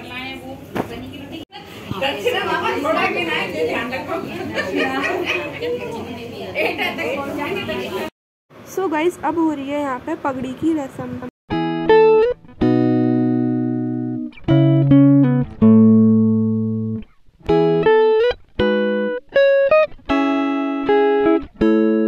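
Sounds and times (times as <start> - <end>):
plucked guitar chords: 11.5 - 22.0.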